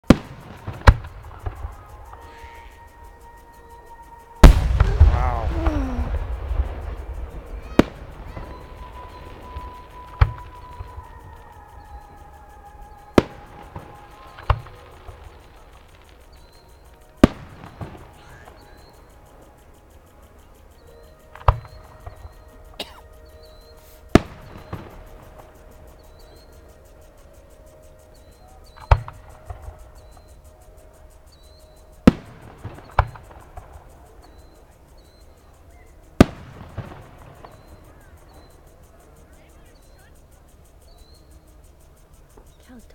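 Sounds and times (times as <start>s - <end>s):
firework shells bursting: 0.0s - 42.6s
fainter pops and echoes: 4.4s - 11.4s.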